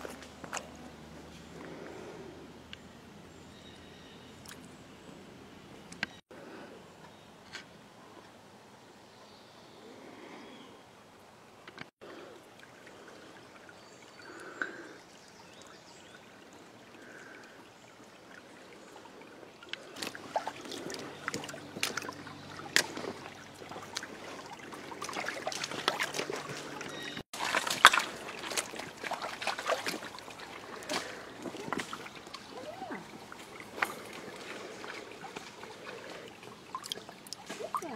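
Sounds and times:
stream splashing over rocks: 12.0s - 37.9s.

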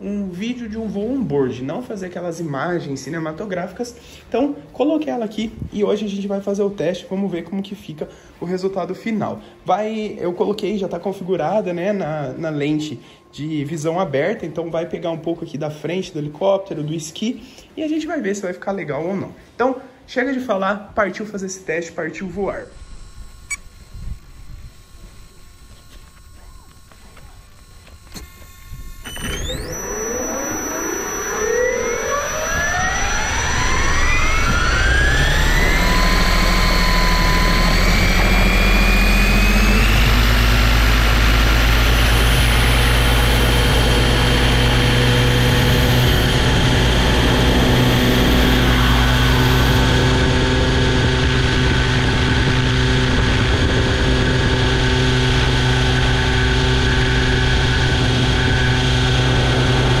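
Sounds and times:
electric helicopter motor whine: 22.3s - 60.0s.

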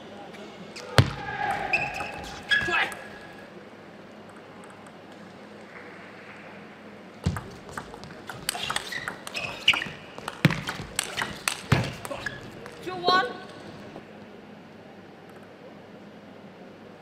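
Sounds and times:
table tennis ball clicks: 7.3s - 12.8s.

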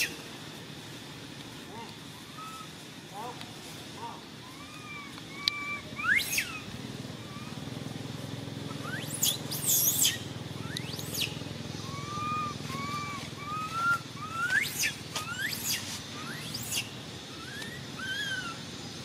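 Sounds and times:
soft short monkey calls: 1.7s - 7.8s, 8.8s - 18.7s
infant monkey squealing: 2.2s - 2.7s, 4.4s - 7.7s, 8.8s - 18.7s.

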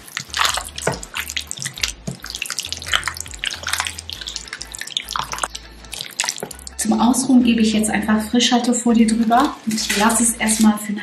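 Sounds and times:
hands squelching meat in marinade: 0.0s - 6.8s.

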